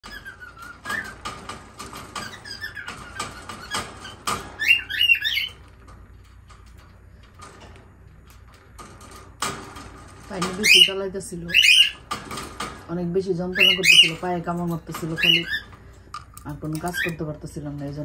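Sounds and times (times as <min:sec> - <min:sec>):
bird squawking: 0:00.0 - 0:01.3, 0:02.2 - 0:05.6, 0:10.6 - 0:12.0, 0:13.5 - 0:14.3
bird rattling cage bars: 0:00.0 - 0:18.0.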